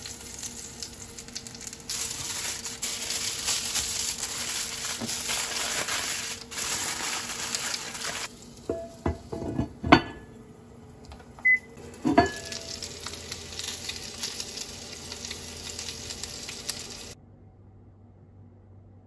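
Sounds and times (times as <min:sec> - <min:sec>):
food sizzling in pan: 0:00.0 - 0:11.0, 0:11.7 - 0:17.2
glass lid clinking on pan: 0:12.0 - 0:12.7.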